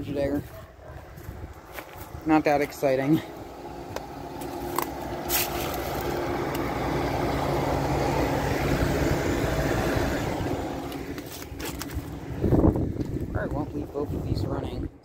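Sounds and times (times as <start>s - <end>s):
air conditioner humming: 1.4s - 15.0s
passing vehicle: 3.2s - 14.5s.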